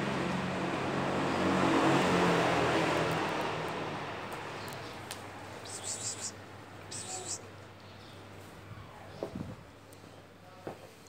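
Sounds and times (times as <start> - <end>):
motor vehicle passing: 0.0 - 7.6.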